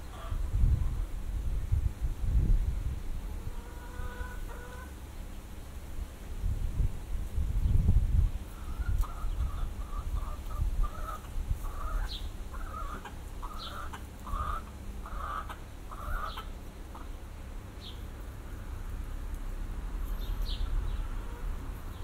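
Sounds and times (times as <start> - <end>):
low wind rumble: 0.0 - 22.0
chicken clucking: 3.3 - 4.9, 8.5 - 17.2
small bird chirping: 20.1 - 21.2.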